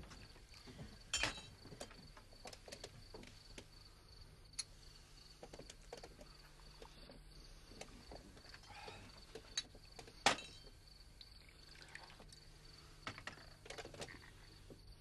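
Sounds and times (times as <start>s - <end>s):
small clicks and knocks: 0.0s - 3.7s, 5.4s - 8.6s
faint steady hiss: 0.0s - 15.0s.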